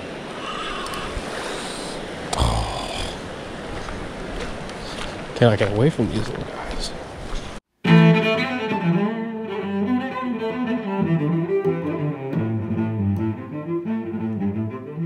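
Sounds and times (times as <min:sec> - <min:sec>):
low instrumental melody: 0:07.8 - 0:15.0.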